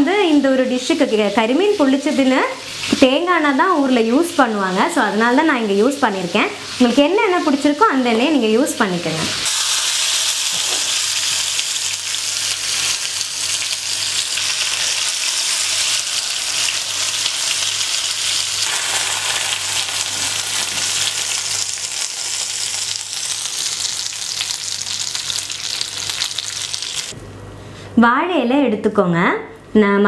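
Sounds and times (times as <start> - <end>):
fish sizzling in a pan: 9.4 - 27.2.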